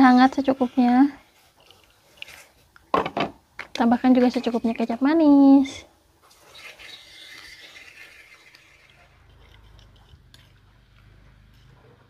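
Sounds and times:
scraping in stone mortar: 6.4s - 10.7s.

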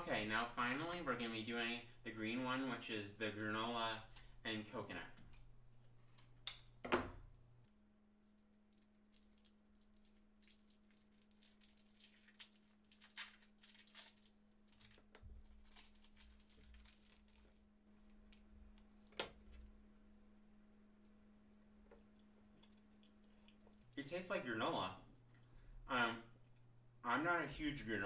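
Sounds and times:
wrapper crinkling: 8.4s - 18.4s
scissors cutting wrapper: 10.4s - 17.6s.

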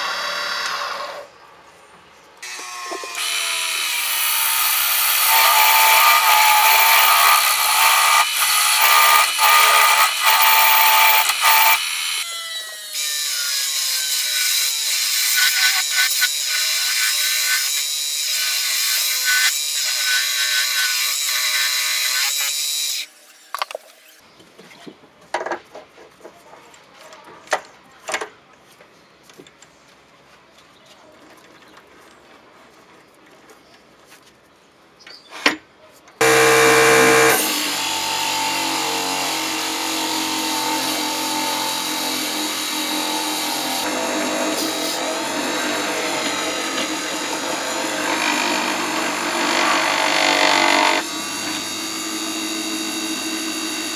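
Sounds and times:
drill boring into spinning wood: 2.4s - 13.8s, 36.2s - 53.9s.

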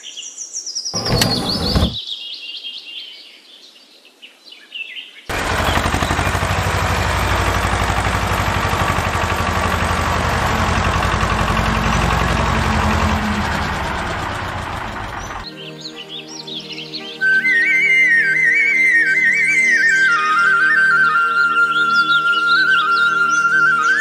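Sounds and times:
tractor engine chugging: 1.0s - 2.0s, 5.3s - 15.5s.

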